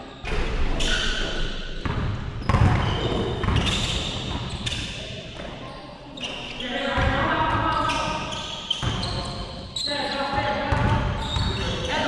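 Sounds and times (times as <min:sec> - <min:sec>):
basketball bouncing on gym floor: 0:01.8 - 0:04.8, 0:06.9 - 0:09.4, 0:10.3 - 0:12.0.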